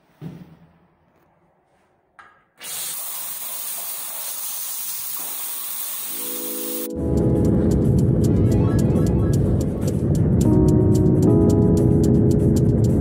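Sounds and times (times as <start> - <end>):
shower spraying water: 2.6 - 6.9.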